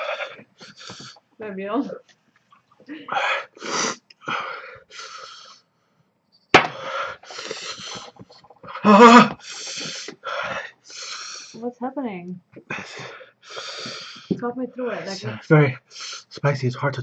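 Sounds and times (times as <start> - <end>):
man gasping breaths: 0.0 - 1.2, 3.1 - 5.6, 6.6 - 11.6, 12.7 - 14.4
man moaning: 8.8 - 10.0.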